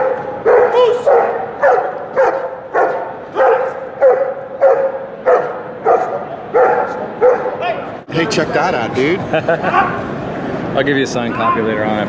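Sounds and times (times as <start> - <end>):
dog barking: 0.0 - 7.6.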